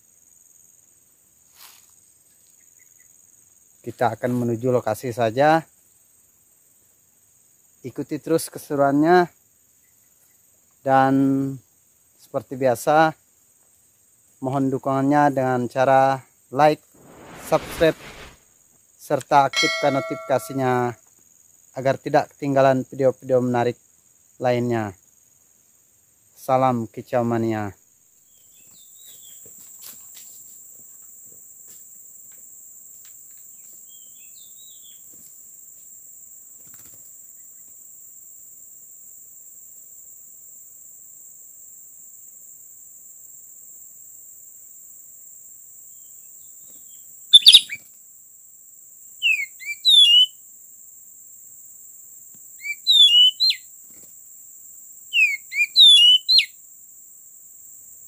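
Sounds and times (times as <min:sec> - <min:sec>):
bird chirping calls: 0:19.6 - 0:20.9, 0:47.4 - 0:47.8, 0:49.2 - 0:50.3, 0:52.6 - 0:53.6, 0:55.2 - 0:56.5.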